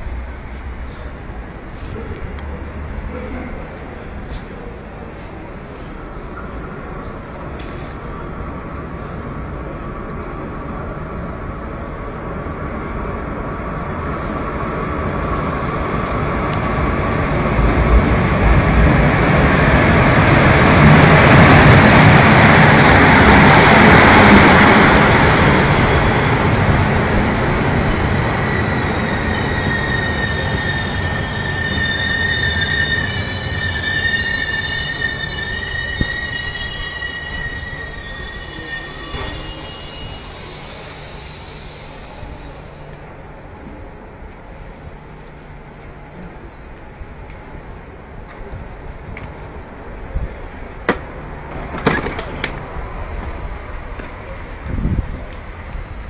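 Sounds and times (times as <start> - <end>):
train rolling past: 0.0 - 56.0
high-pitched wheel squeal: 27.9 - 43.0.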